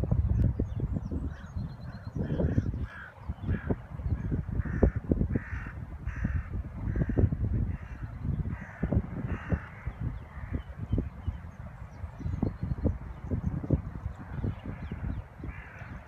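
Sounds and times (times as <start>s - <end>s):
crows cawing: 2.2s - 10.6s, 14.2s - 16.0s.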